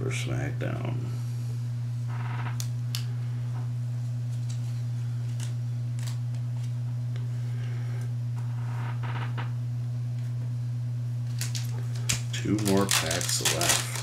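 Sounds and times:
low electrical hum: 0:00.0 - 0:14.0
cards clicking and rustling: 0:04.4 - 0:06.7, 0:11.3 - 0:14.0.

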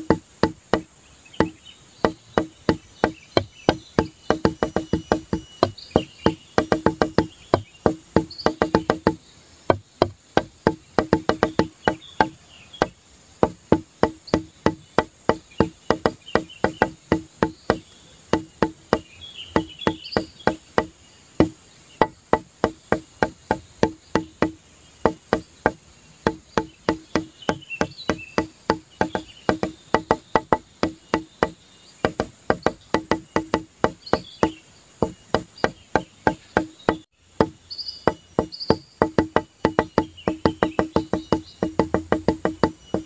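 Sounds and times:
wooden-sounding plucks: 0:00.0 - 0:43.0
faint high chirps: 0:01.3 - 0:09.3.

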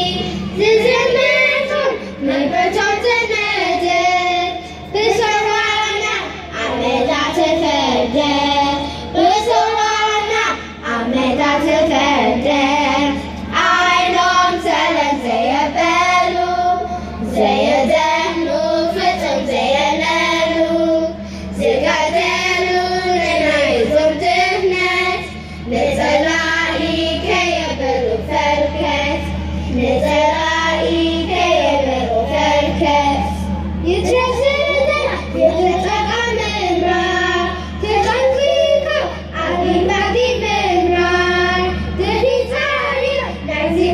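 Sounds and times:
children's choir singing: 0:00.0 - 0:43.9.

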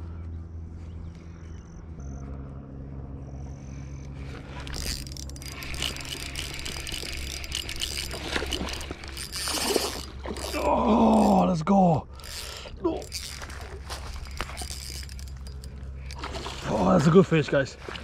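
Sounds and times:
steady low hum: 0:00.0 - 0:18.0
spinning reel clicking rattle: 0:04.6 - 0:11.3, 0:12.2 - 0:16.3.

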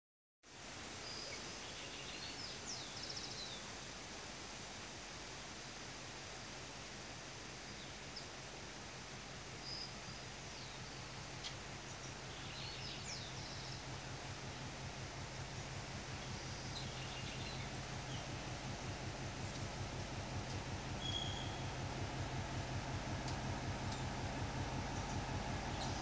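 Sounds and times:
diesel locomotive engine hum: 0:00.6 - 0:26.0
bird chirps: 0:09.7 - 0:18.6, 0:20.5 - 0:21.9, 0:24.8 - 0:26.0.

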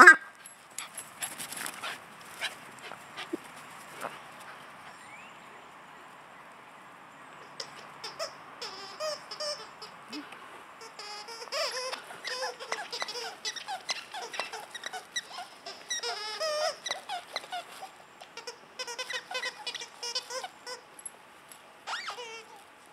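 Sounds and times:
dog toy squeaking: 0:07.6 - 0:20.9, 0:21.8 - 0:22.6.

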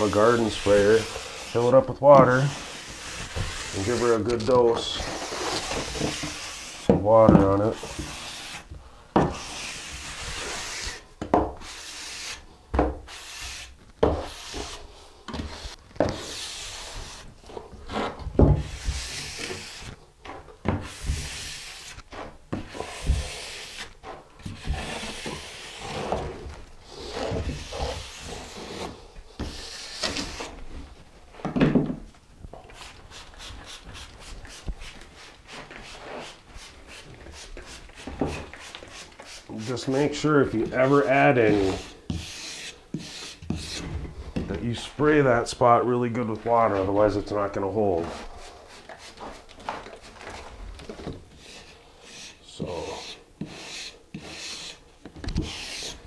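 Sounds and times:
hand float scraping mortar: 0:00.0 - 0:20.0, 0:20.7 - 0:30.6, 0:32.7 - 0:45.5, 0:46.1 - 0:56.0.

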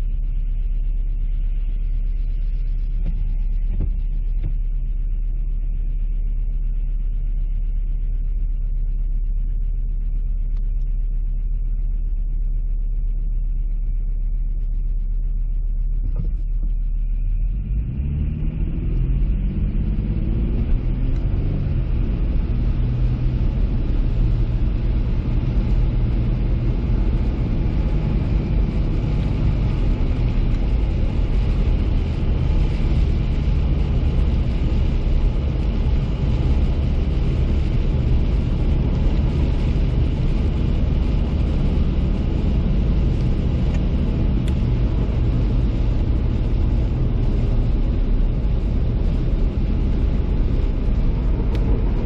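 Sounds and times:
car engine and road noise: 0:02.5 - 0:05.0, 0:15.8 - 0:52.0.

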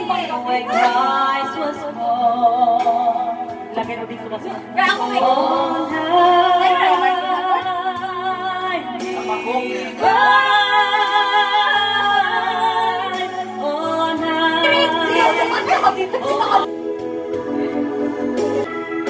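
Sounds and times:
woman singing with vibrato: 0:00.0 - 0:03.4, 0:04.8 - 0:09.0, 0:09.8 - 0:16.7
backing music: 0:00.0 - 0:19.0.

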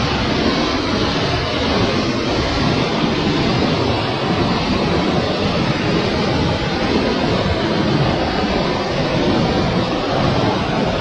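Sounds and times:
waterfall roaring: 0:00.0 - 0:11.0.

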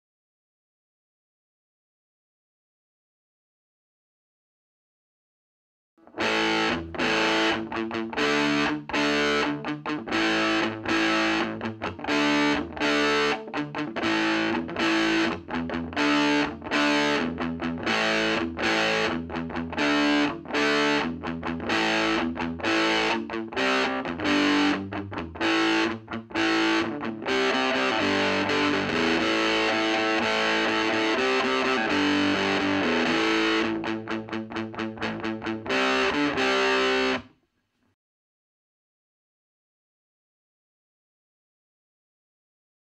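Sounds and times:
distorted electric guitar chords: 0:06.1 - 0:37.2.

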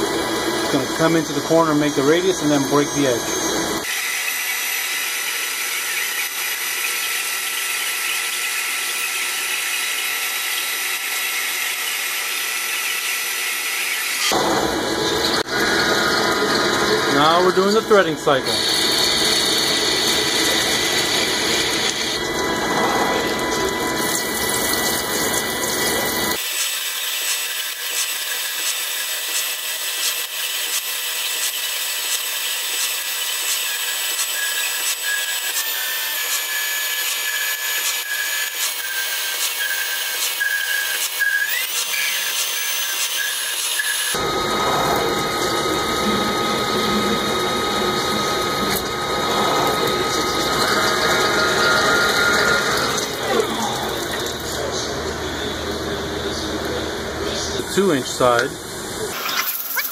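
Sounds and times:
lathe high whine: 0:00.0 - 0:59.9
lathe low rumble: 0:14.3 - 0:26.4, 0:44.2 - 0:57.7.

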